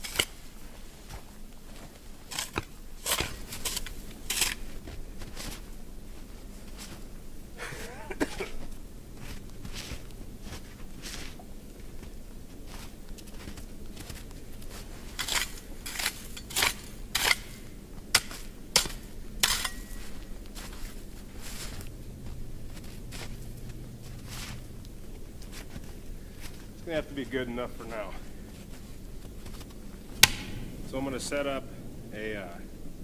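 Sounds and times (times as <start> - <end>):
shovel blade strikes: 0.0 - 0.4, 2.3 - 4.6, 15.2 - 20.2, 30.2 - 30.7
shovel scraping snow: 0.0 - 1.2, 1.8 - 5.6, 13.4 - 21.9
metallic ring: 19.4 - 20.1.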